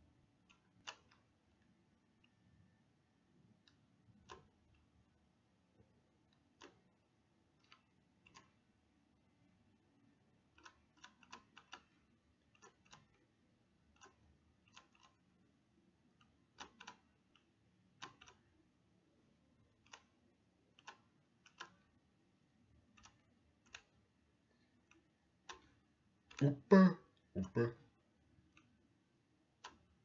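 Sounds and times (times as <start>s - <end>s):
computer mouse clicking: 0.4s - 2.4s, 3.6s - 4.9s, 6.3s - 6.9s, 7.5s - 8.7s, 10.5s - 15.3s, 16.1s - 18.6s, 19.7s - 22.0s, 22.8s - 26.4s, 28.4s - 28.8s, 29.6s - 30.0s.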